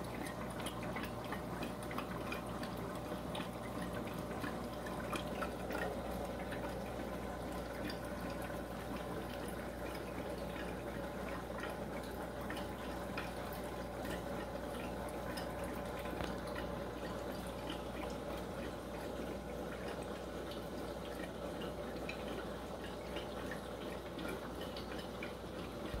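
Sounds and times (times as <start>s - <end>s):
aquarium filter bubbling: 0.0s - 26.0s.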